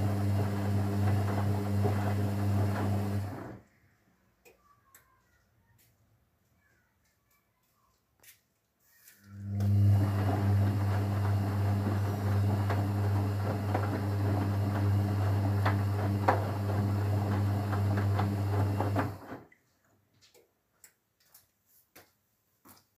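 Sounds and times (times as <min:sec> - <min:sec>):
washing machine motor hum: 0:00.0 - 0:03.6, 0:09.3 - 0:19.5.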